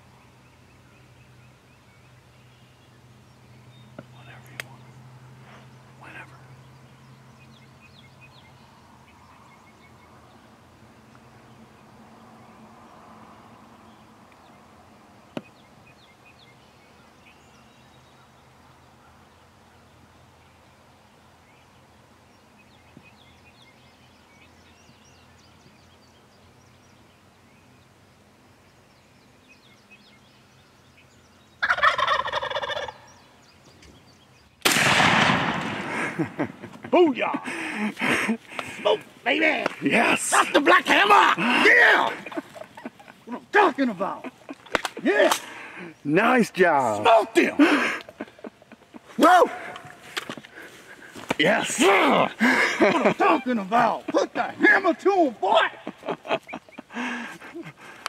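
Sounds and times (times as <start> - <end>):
faint songbird chirps: 0.0 - 34.6, 36.1 - 58.0
turkey gobbling: 31.6 - 33.0
shotgun blast: 34.6 - 35.9.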